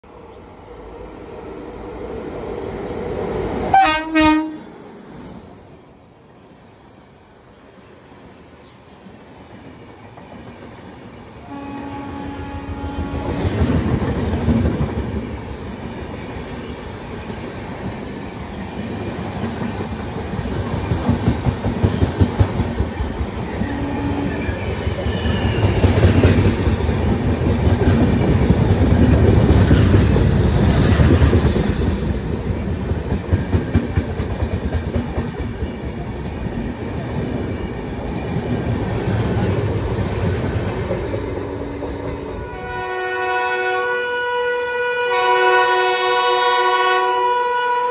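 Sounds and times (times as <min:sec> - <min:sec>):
train rumbling: 0:00.0 - 0:47.9
train horn blast: 0:03.7 - 0:04.7, 0:11.4 - 0:13.6, 0:23.7 - 0:25.4, 0:42.4 - 0:47.9.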